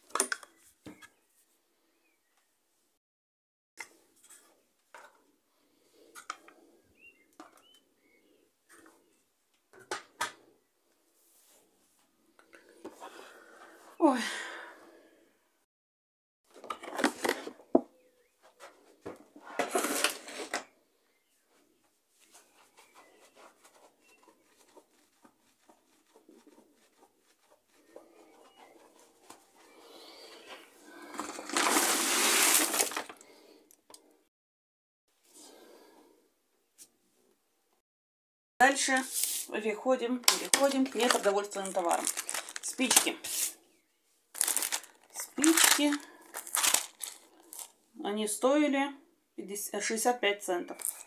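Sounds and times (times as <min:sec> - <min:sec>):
faint bird chirps: 0:06.8 - 0:09.3, 0:28.2 - 0:29.0
plastic packaging rustling: 0:30.4 - 0:33.4, 0:40.2 - 0:43.6, 0:44.3 - 0:47.8, 0:50.7 - 0:51.0.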